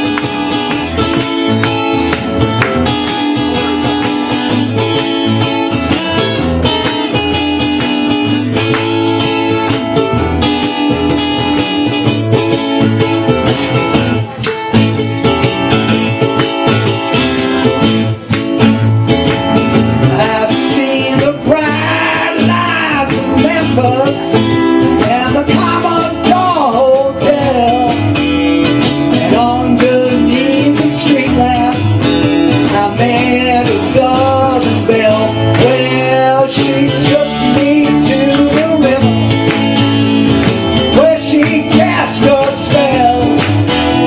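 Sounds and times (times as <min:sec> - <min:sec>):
strummed acoustic guitars: 0:00.0 - 0:44.0
person singing: 0:20.0 - 0:39.6, 0:40.8 - 0:44.0.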